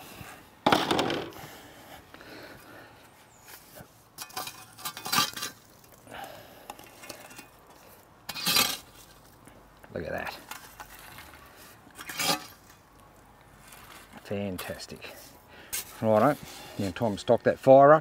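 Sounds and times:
shovel scraping coals on metal: 0:03.4 - 0:09.3, 0:10.1 - 0:12.9, 0:13.5 - 0:17.8.

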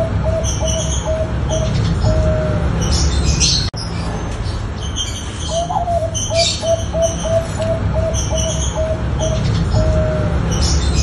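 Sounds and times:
dove cooing: 0:00.0 - 0:03.0, 0:05.5 - 0:11.0
small birds chirping: 0:00.0 - 0:11.0
steady low rumble: 0:00.0 - 0:11.0.

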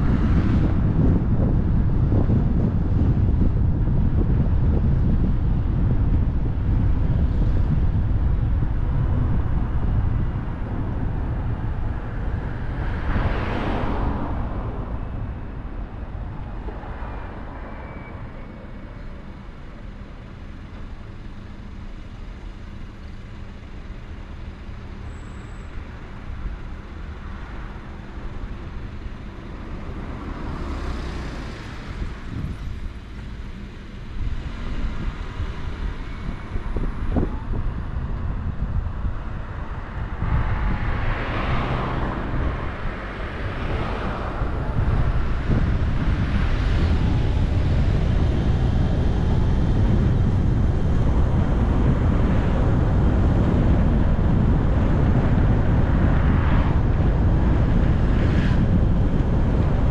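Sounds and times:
car tyre and engine rumble: 0:00.0 - 0:59.9
vehicles swishing past: 0:08.9 - 0:20.0, 0:26.4 - 0:59.9.

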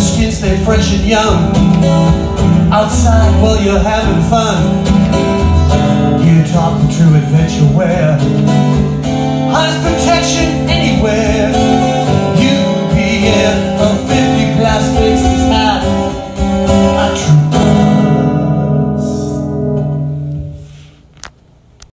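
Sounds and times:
acoustic guitar strumming: 0:00.0 - 0:21.0
person singing: 0:02.7 - 0:08.8, 0:09.4 - 0:19.6.

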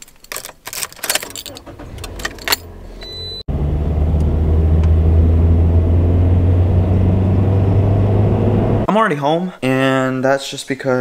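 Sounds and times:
car interior engine and road noise: 0:01.3 - 0:08.9.

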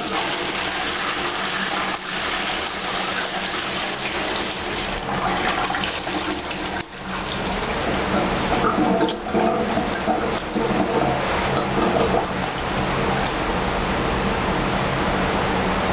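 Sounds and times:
toilet bowl refilling: 0:00.0 - 0:13.5
toilet flushing: 0:00.0 - 0:14.5.

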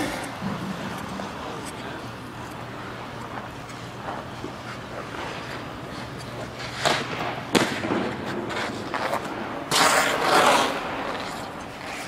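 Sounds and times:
skate blades scraping ice: 0:03.3 - 0:12.0.

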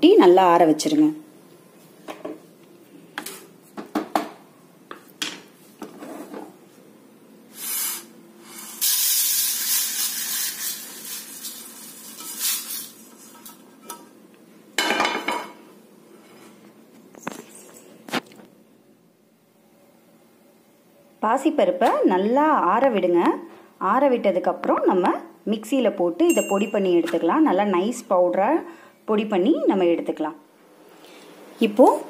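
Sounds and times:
grains pouring onto steel plate: 0:08.6 - 0:13.2.

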